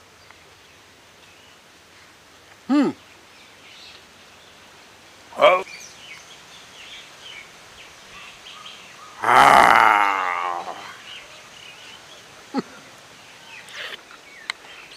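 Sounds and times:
birds chirping faintly: 0.0 - 14.9
man's drawn-out vocal sound: 9.2 - 10.9.

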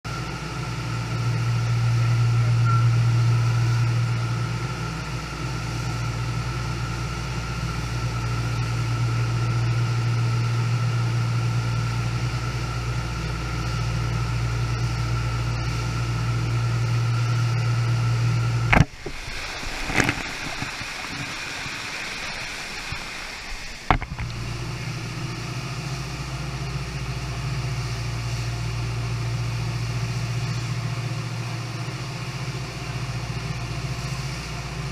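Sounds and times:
deep pump hum: 0.0 - 34.9
water rushing over surf machine: 0.1 - 34.9.

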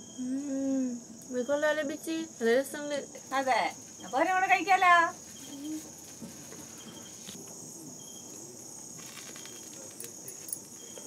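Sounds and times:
crickets chirping: 0.0 - 11.0
faint crackles: 8.4 - 11.0.

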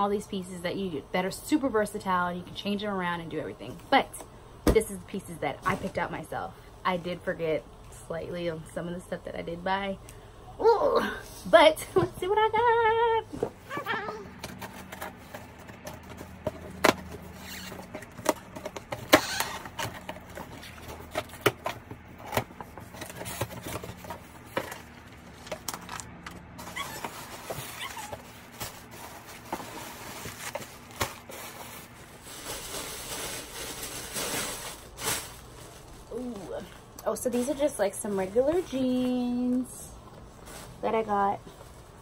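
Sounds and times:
cardboard scrapes and creaks: 13.6 - 32.2
paper packaging rustling: 14.2 - 42.0.

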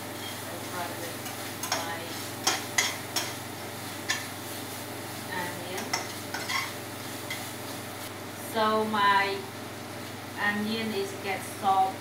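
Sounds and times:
onions frying sizzle: 0.0 - 12.0
metal turner scraping a pan: 5.7 - 7.5.

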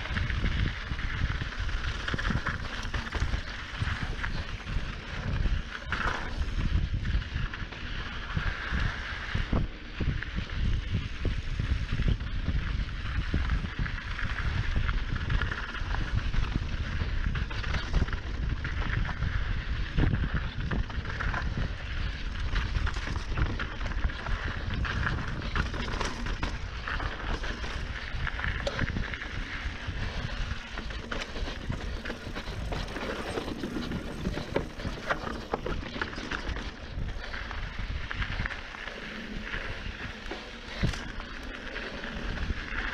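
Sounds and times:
bike knocking and rattling: 0.0 - 42.9
tyres rolling over loose dirt: 0.0 - 42.9
wind rumble on microphone: 0.0 - 42.9.

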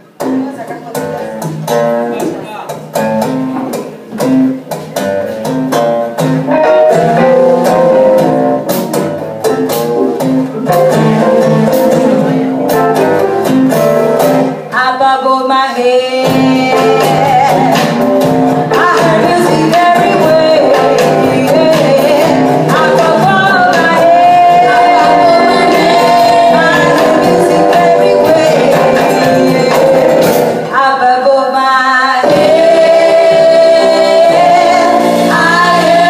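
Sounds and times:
acoustic guitar strumming: 0.1 - 14.8, 32.2 - 36.0
women singing: 14.7 - 18.1, 18.7 - 36.0.

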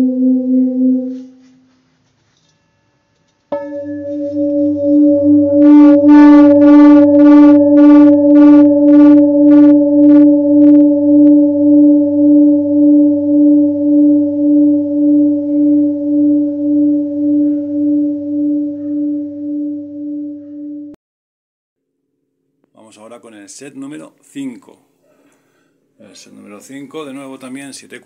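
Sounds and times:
singing bowl ringing: 0.0 - 1.5, 3.5 - 21.0.

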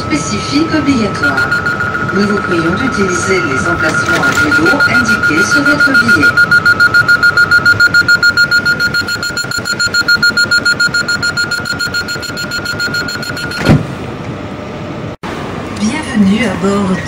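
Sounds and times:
train doors shutting: 0.0 - 6.2, 11.6 - 14.4
rapid high electronic beeping: 0.0 - 13.6
train humming: 0.0 - 17.0.

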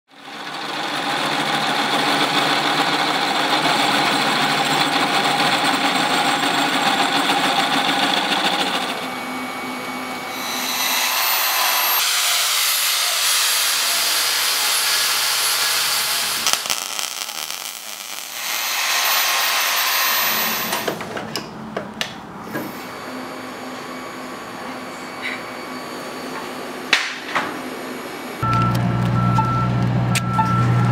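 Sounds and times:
angle grinder cutting steel: 0.2 - 21.0.

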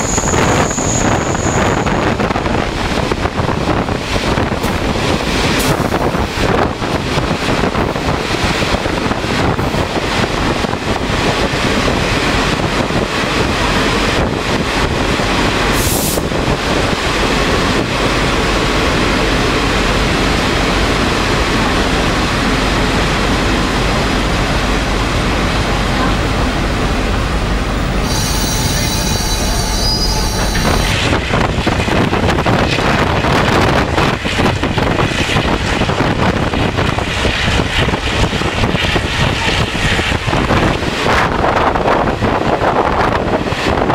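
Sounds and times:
high wheel squeal: 0.0 - 2.2, 27.9 - 31.0
train wheel and rail rumble: 0.0 - 43.9
wind rush: 0.0 - 43.9.

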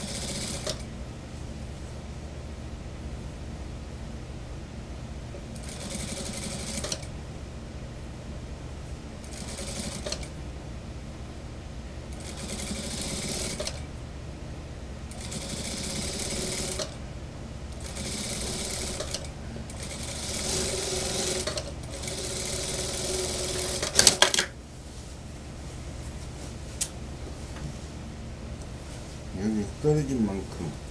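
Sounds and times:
sewing machine stitching: 0.0 - 0.8, 12.2 - 13.8, 17.8 - 24.5
sewing machine motor hum: 0.0 - 0.9, 5.5 - 7.1, 9.2 - 10.4, 12.1 - 13.9, 15.1 - 17.0, 17.7 - 24.5.

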